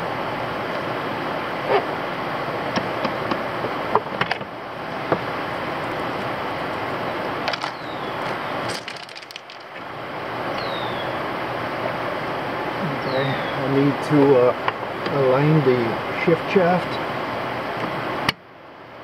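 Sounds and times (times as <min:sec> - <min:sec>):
metal parts clicking and knocking: 0:07.5 - 0:07.8, 0:08.7 - 0:09.8.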